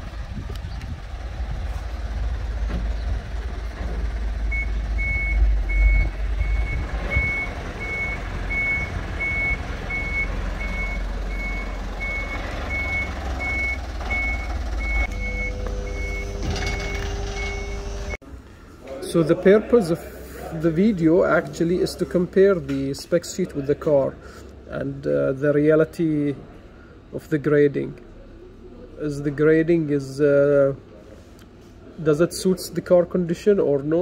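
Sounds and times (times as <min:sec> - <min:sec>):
truck engine rumble: 0:00.0 - 0:30.2
reversing alarm beeping: 0:04.5 - 0:18.2.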